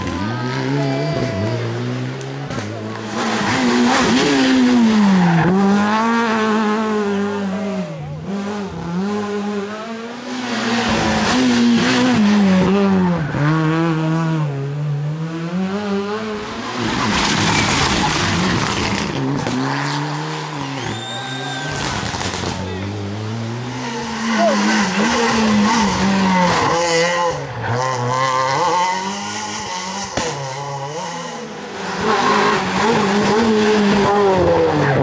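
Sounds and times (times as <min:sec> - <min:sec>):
rally car engine revving: 0:00.0 - 0:35.0
second car engine: 0:00.0 - 0:35.0
tyre skid noise: 0:16.8 - 0:26.8
tyres squealing: 0:20.5 - 0:22.2.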